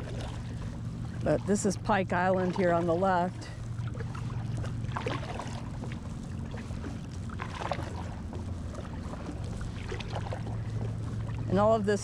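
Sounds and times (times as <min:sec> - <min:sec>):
paddle dipping into water: 0:00.0 - 0:11.9
low rumble: 0:00.0 - 0:12.0
water splashes and drips: 0:03.8 - 0:11.5.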